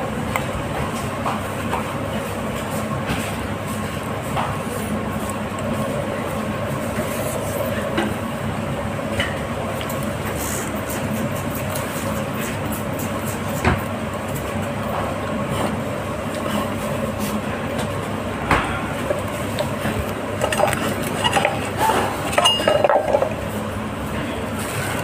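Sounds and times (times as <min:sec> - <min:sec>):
dining room hum: 0:00.0 - 0:25.0
chopsticks and dishes clinking: 0:20.4 - 0:23.4.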